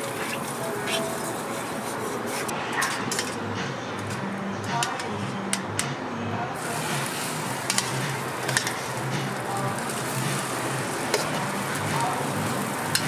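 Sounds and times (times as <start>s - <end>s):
metal utensils scraping griddle: 6.6s - 13.0s
sizzling hiss: 6.6s - 13.0s.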